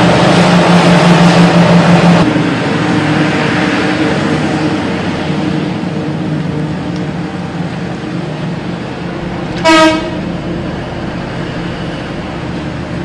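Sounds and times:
diesel machinery droning: 0:00.0 - 0:13.0
horn blast: 0:09.6 - 0:10.2.

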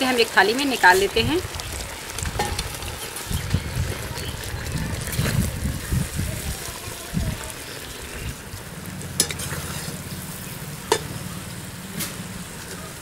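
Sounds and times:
syrup bubbling: 0:00.0 - 0:13.0
spoon scooping in pan: 0:09.2 - 0:10.1.

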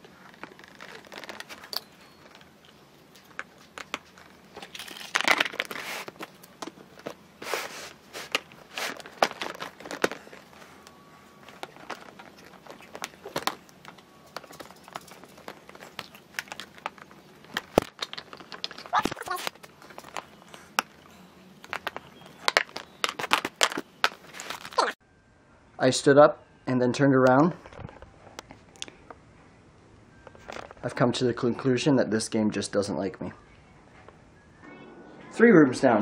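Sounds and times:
rustling: 0:00.0 - 0:25.0
plastic pieces clicking: 0:11.5 - 0:20.9.

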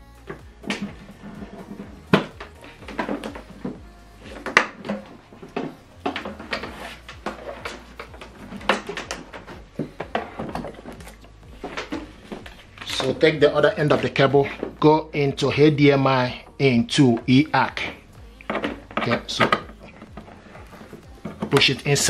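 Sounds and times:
tv knocking and clattering on table: 0:00.3 - 0:14.8.

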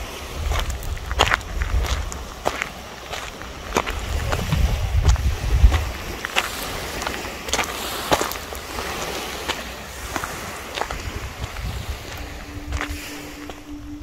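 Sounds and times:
wind rumbling on microphone: 0:00.0 - 0:14.0
footsteps crunching on pebbly dirt: 0:00.3 - 0:14.0.

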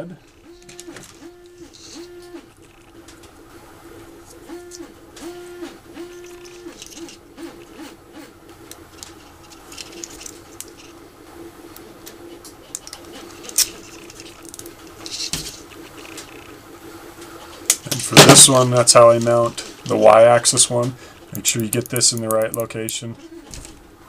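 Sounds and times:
short hooting tones: 0:00.0 - 0:03.0, 0:03.9 - 0:08.4
steady low hum: 0:00.0 - 0:24.0.

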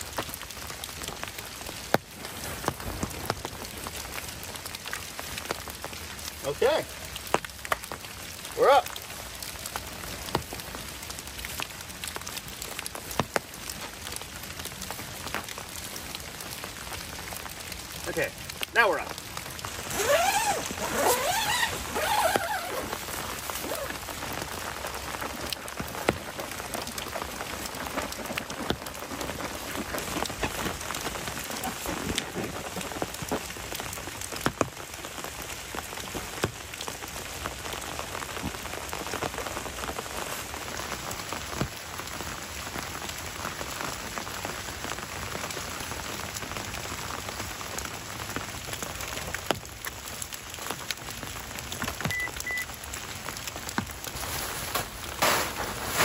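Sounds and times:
raindrops tapping: 0:00.0 - 0:56.0
steady rain falling: 0:00.0 - 0:56.0
squeaky rubbing: 0:19.9 - 0:22.9.

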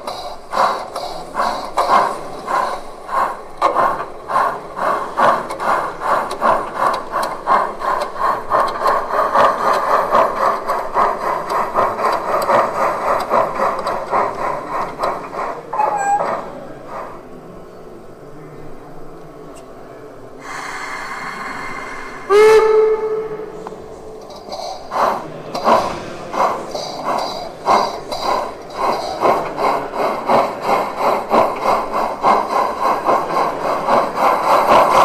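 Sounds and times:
model steam locomotive chuffing: 0:00.0 - 0:35.0.

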